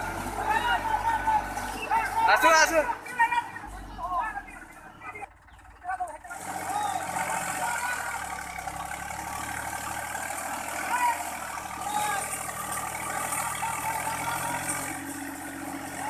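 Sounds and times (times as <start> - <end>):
tractor diesel engine under load: 0.0 - 16.0
wheels churning in mud: 0.0 - 16.0
people shouting: 0.2 - 4.5, 6.6 - 8.3, 10.7 - 15.1.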